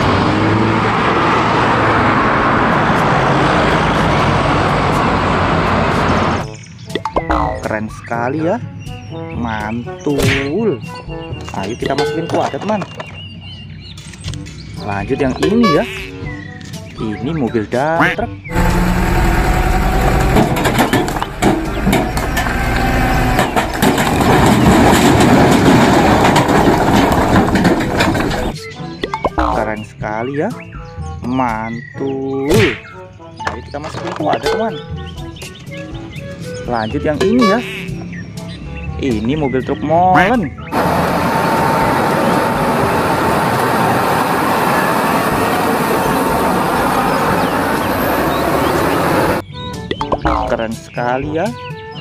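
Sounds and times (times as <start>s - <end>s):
bus engine hum: 0.0s - 6.6s, 12.9s - 16.9s, 18.4s - 28.6s, 40.5s - 49.4s
street traffic rush: 0.0s - 31.9s, 32.5s - 49.9s
rocks tumbling from truck: 19.7s - 28.6s.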